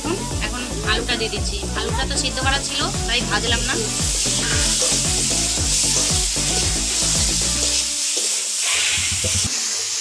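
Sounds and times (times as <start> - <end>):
background music: 0.0 - 8.1
food sizzling in hot oil: 0.0 - 10.0
spatula stirring in pan: 3.5 - 10.0.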